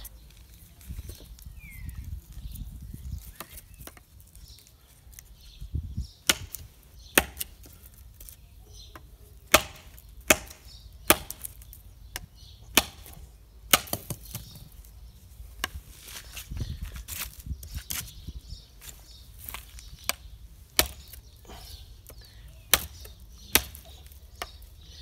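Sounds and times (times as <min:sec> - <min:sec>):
knife chopping dry branch: 0:03.3 - 0:04.0, 0:06.2 - 0:08.4, 0:09.0 - 0:14.5, 0:19.4 - 0:24.7.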